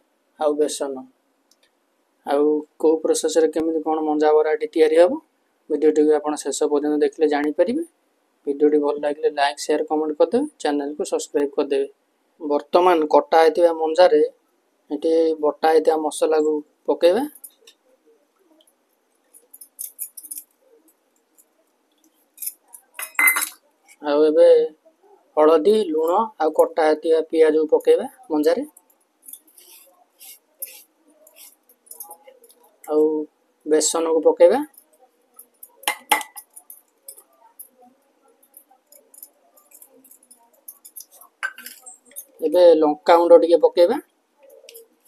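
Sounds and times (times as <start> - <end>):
metal spoon clinking steel bowl: 22.4 - 23.6, 34.6 - 37.8, 38.4 - 42.4.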